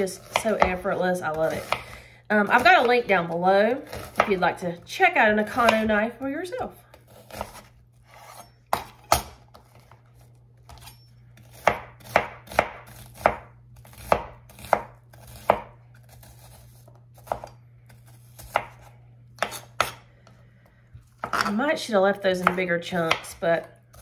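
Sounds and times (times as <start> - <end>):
steady low hum: 0.0 - 24.0
knife chopping on work surface: 11.5 - 17.6, 18.4 - 20.0.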